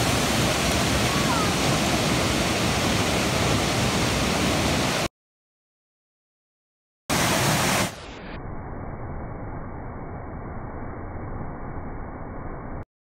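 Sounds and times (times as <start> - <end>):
waterfall rushing over rocks: 0.0 - 5.1, 7.1 - 8.2.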